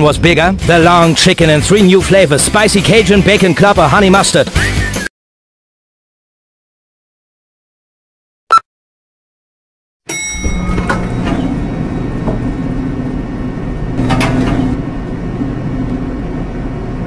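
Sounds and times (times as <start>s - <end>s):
elevator low mechanical hum: 10.2s - 17.0s.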